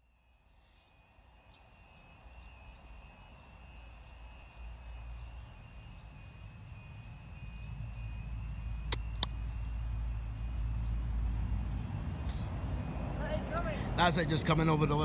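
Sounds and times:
faint bird chirps: 0:00.0 - 0:13.0
diesel train rumbling: 0:02.5 - 0:15.0.

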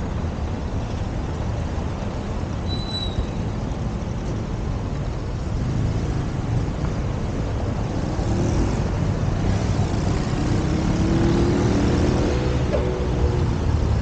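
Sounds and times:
passing cars: 0:00.0 - 0:14.0
vehicle engine accelerating: 0:07.8 - 0:14.0.

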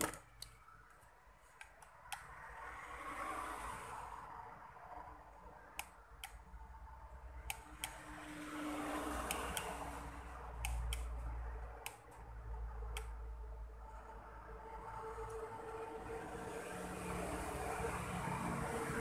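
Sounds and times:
small sharp clicks of hand tools: 0:09.2 - 0:09.8.

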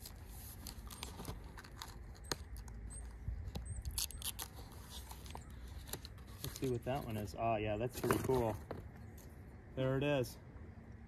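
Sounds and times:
paper wrapping rustling: 0:00.0 - 0:02.7, 0:03.9 - 0:07.2.

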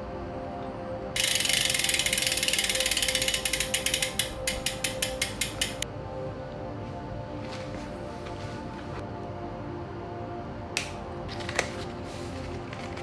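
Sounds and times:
bicycle freewheel ratchet clicking: 0:01.2 - 0:05.8.

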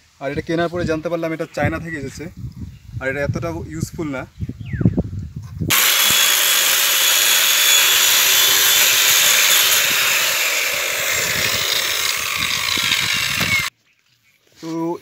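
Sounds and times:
chainsaw cutting log: 0:05.7 - 0:13.7.

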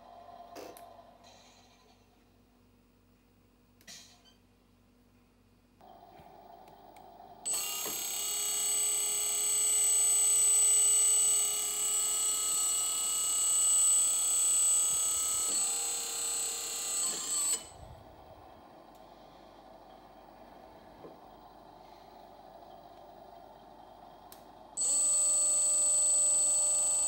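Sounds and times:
hydraulic pump whining: 0:07.4 - 0:18.4, 0:24.8 - 0:27.0.

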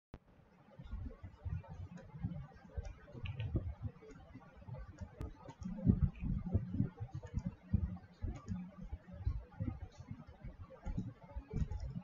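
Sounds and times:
keyboard and mouse clicking: 0:02.7 - 0:04.3, 0:04.9 - 0:08.9, 0:10.8 - 0:12.0.

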